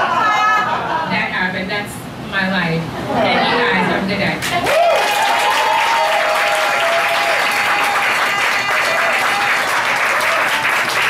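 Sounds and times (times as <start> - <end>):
audience applauding: 4.4 - 11.0.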